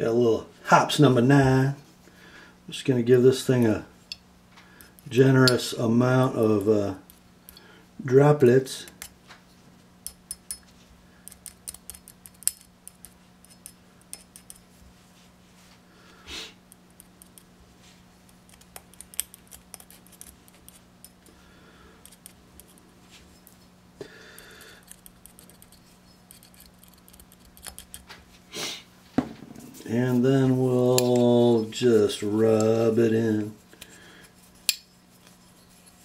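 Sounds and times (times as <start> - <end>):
faint hum: 0.0 - 36.0
soft rustles: 33.3 - 36.0.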